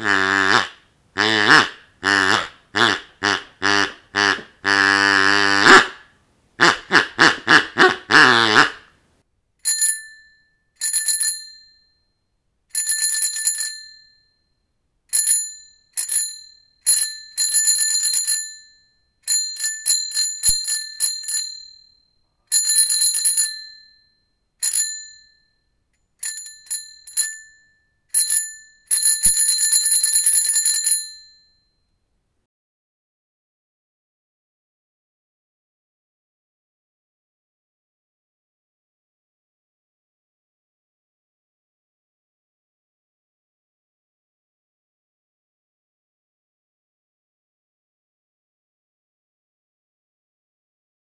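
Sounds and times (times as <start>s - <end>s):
bicycle bell ringing: 9.6s - 32.0s.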